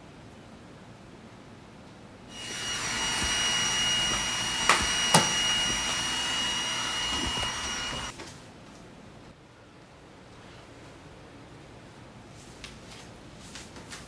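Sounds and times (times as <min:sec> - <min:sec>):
robot vacuum whirring: 0:02.3 - 0:08.1
robot vacuum knocking: 0:02.4 - 0:08.1.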